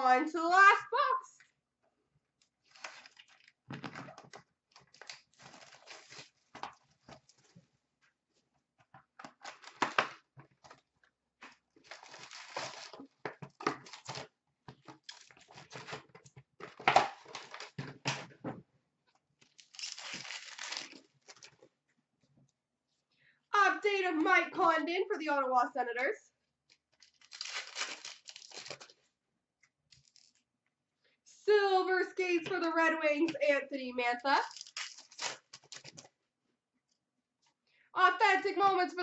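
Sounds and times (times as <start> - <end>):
card packs tearing and crinkling: 2.6 - 4.0, 4.7 - 7.4, 11.8 - 18.0, 19.4 - 21.6, 27.0 - 29.0, 30.0 - 30.4, 34.4 - 36.1.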